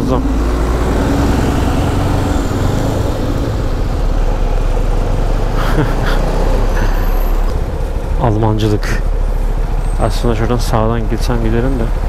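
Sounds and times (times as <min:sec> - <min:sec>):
city traffic noise: 0:00.0 - 0:12.0
motorcycle engine running: 0:06.6 - 0:12.0.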